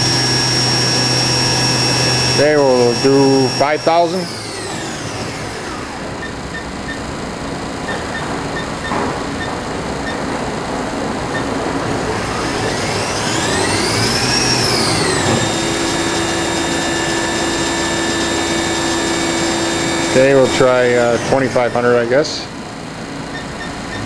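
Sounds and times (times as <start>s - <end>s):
machine spindle whine: 0.0s - 24.0s.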